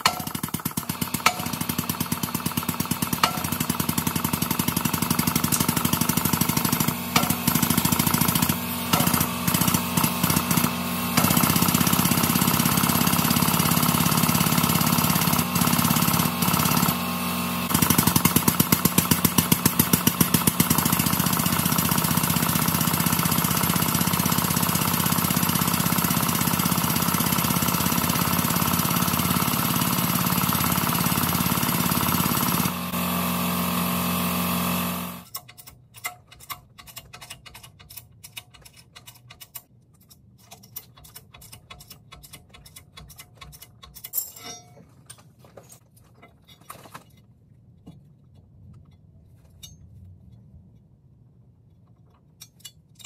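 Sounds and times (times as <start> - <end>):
pneumatic air tool hammering: 0.0 - 39.5.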